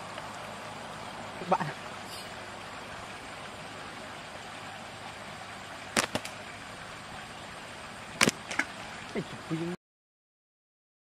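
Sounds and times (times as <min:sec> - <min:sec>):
steady outdoor hiss: 0:00.0 - 0:09.8
slingshot rubber bands snapping: 0:06.0 - 0:06.4, 0:08.2 - 0:08.6.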